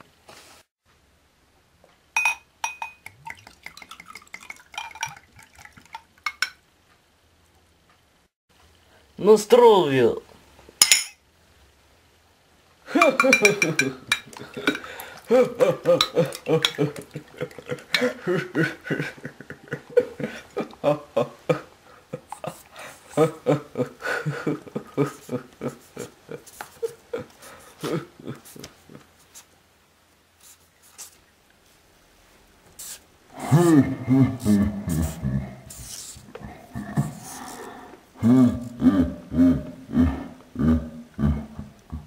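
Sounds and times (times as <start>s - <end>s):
glass clinking on glass: 2.2s - 3.1s, 10.8s - 11.2s, 13.1s - 14.8s
liquid gurgling and glugging: 3.1s - 6.2s
person vocalizing: 12.9s - 29.0s, 33.3s - 42.0s.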